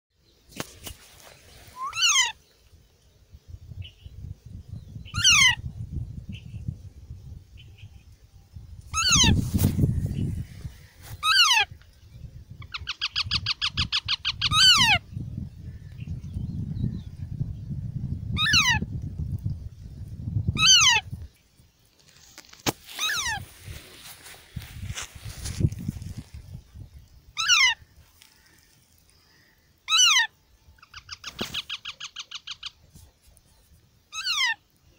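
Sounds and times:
parakeet chick squawking: 0:01.8 - 0:02.4, 0:05.1 - 0:05.6, 0:09.0 - 0:09.4, 0:12.7 - 0:15.0, 0:20.6 - 0:21.1, 0:23.0 - 0:23.4, 0:27.4 - 0:27.8, 0:29.9 - 0:32.8, 0:34.1 - 0:34.6
parakeet squawking: 0:01.8 - 0:02.4, 0:05.1 - 0:05.6, 0:09.0 - 0:09.4, 0:20.6 - 0:21.0, 0:23.0 - 0:23.4, 0:27.4 - 0:27.8.

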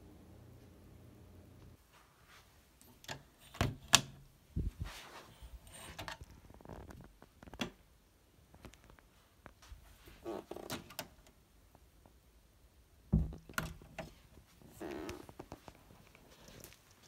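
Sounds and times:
door knocks and rustles: 0:13.1 - 0:14.1.

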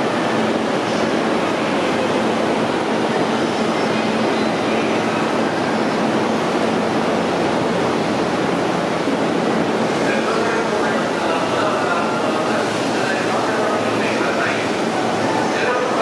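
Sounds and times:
train rumbling with faint hum: 0:00.0 - 0:16.0.

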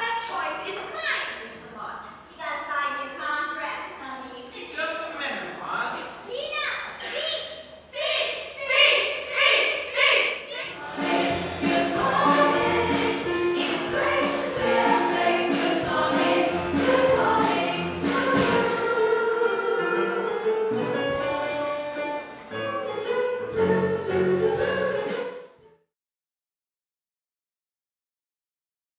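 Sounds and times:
young performers singing chorus: 0:08.6 - 0:21.0
musical accompaniment: 0:10.6 - 0:25.9.

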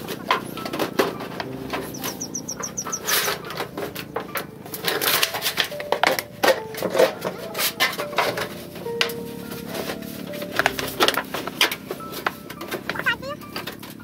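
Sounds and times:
high rapid chirping trill: 0:01.8 - 0:03.4
sheet knocking and scraping on grass: 0:03.1 - 0:13.1.

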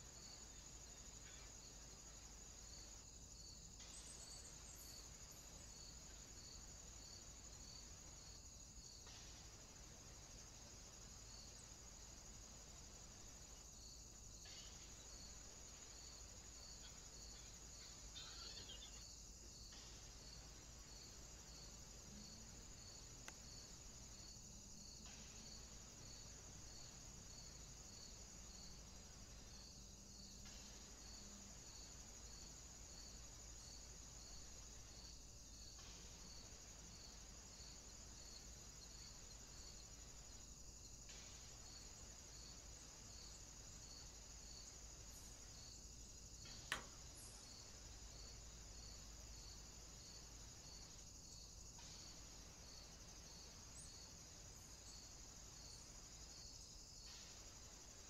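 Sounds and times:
high-pitched insect chirring: 0:18.2 - 0:19.1.

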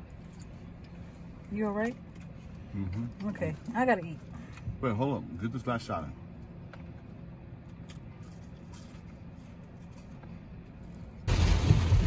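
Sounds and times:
low hum inside car: 0:00.0 - 0:12.0
road noise: 0:00.0 - 0:12.0
loud rain: 0:11.3 - 0:12.0.

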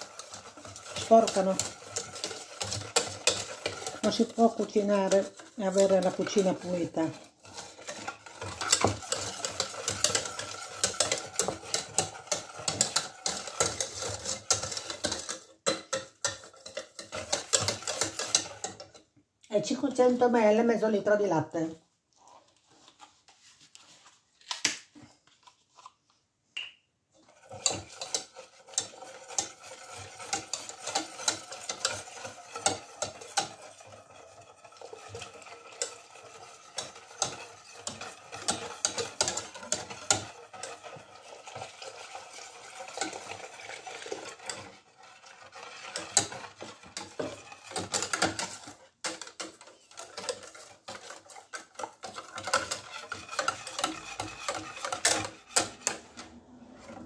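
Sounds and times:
whisk clinking against a pot: 0:00.0 - 0:19.1, 0:27.2 - 0:56.2.

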